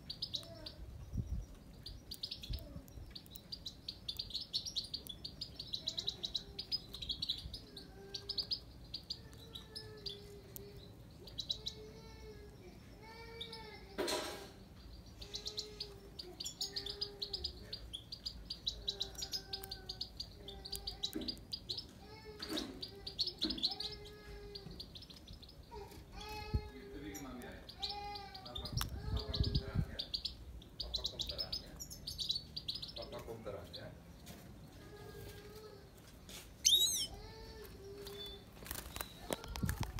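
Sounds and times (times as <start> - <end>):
goldfinch twittering song: 0.0 - 11.9, 14.8 - 21.9, 27.1 - 33.8, 36.6 - 37.2.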